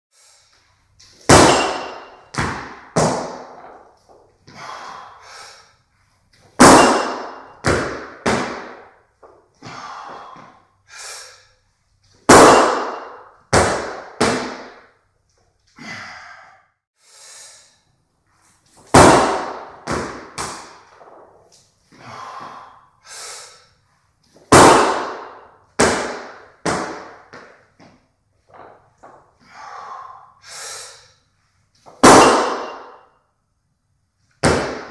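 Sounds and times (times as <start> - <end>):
person breathing: 4.5 - 5.9, 9.6 - 11.6, 15.8 - 17.9, 21.9 - 23.8, 29.4 - 31.3.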